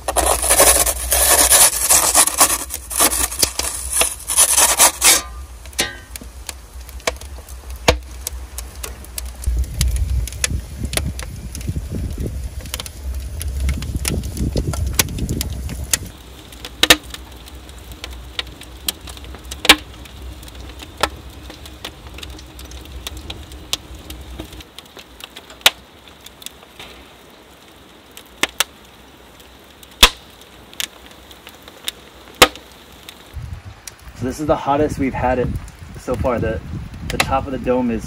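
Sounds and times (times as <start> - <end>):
wood fire crackling: 0.0 - 38.0
low rumble: 5.3 - 16.4.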